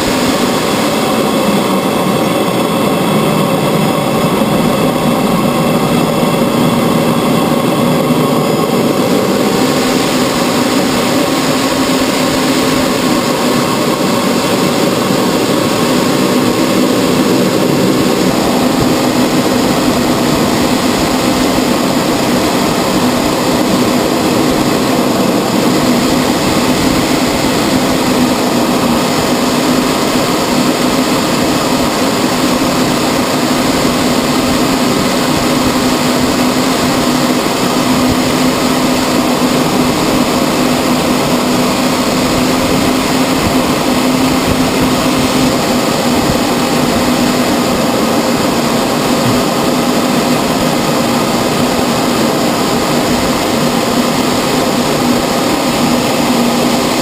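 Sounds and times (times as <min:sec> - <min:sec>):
jet cockpit rush: 0:00.0 - 0:57.0
low engine hum: 0:00.0 - 0:57.0.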